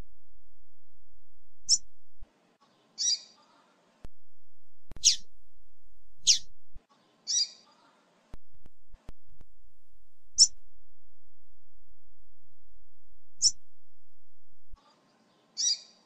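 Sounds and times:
bird chip calls: 0:03.0 - 0:03.6, 0:05.0 - 0:05.2, 0:06.2 - 0:06.4, 0:07.3 - 0:07.6, 0:15.6 - 0:16.0.

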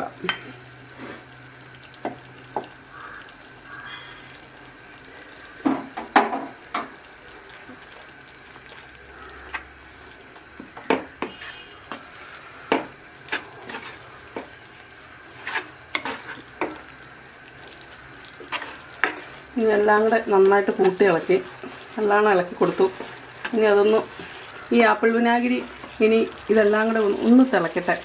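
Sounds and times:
faint sizzle: 0:00.0 - 0:28.0
wooden ladle stirring thick pickle: 0:13.2 - 0:28.0.

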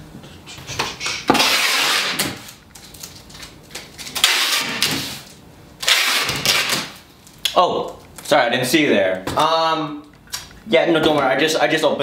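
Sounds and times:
packing tape pulled from tape gun: 0:01.4 - 0:03.1, 0:04.2 - 0:07.0.

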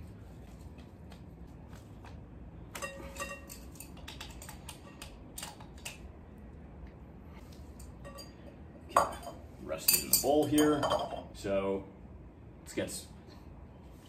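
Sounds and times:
metal clink: 0:02.8 - 0:05.5, 0:07.8 - 0:11.3.

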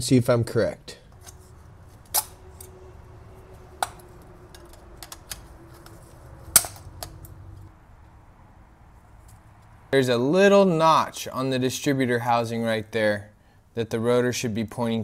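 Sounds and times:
spring clips snapping loose: 0:03.8 - 0:07.4.

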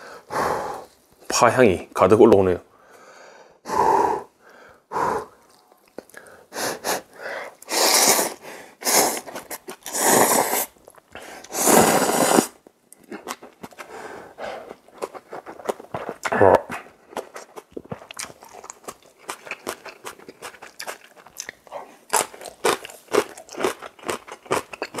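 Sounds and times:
chewing and mouth clicks: 0:05.3 - 0:06.4, 0:09.1 - 0:10.0, 0:10.7 - 0:11.5, 0:12.9 - 0:13.9, 0:14.6 - 0:25.0
noodles being slurped: 0:07.6 - 0:13.9.

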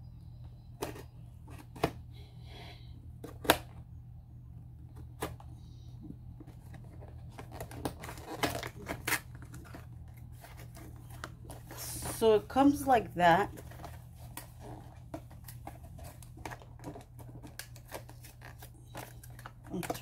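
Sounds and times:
cardboard rustling: 0:06.4 - 0:20.0.

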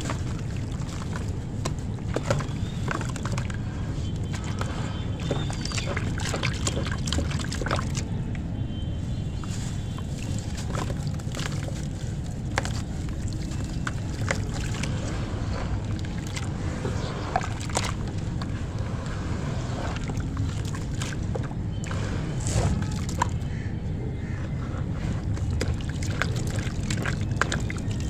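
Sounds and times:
water sloshing: 0:00.0 - 0:08.1, 0:09.2 - 0:23.6, 0:24.9 - 0:28.0
steady low rumble: 0:09.9 - 0:28.0.

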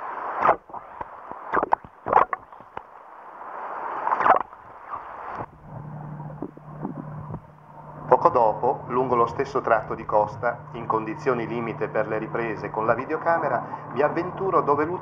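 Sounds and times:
low steady hum: 0:00.0 - 0:15.0
sharp crackles: 0:00.3 - 0:08.2
underwater sloshing and gurgling: 0:00.4 - 0:15.0.

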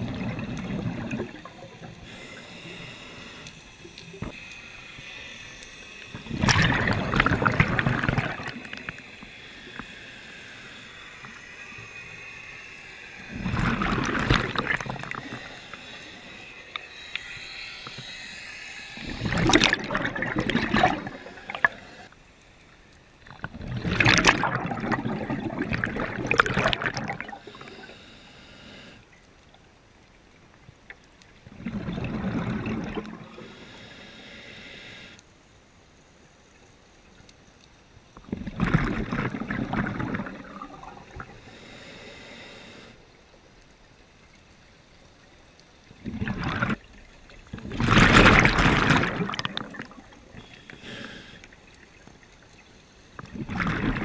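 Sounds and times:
exhaled bubbles underwater: 0:00.0 - 0:02.8, 0:06.1 - 0:09.1, 0:13.2 - 0:16.3, 0:19.0 - 0:22.1, 0:23.3 - 0:27.8, 0:31.4 - 0:33.5, 0:38.2 - 0:41.4, 0:45.8 - 0:50.8, 0:53.2 - 0:54.0
regulator hiss: 0:01.0 - 0:06.4, 0:08.5 - 0:13.9, 0:14.8 - 0:19.7, 0:27.2 - 0:29.1, 0:33.3 - 0:35.3, 0:41.0 - 0:43.3, 0:50.0 - 0:51.6.

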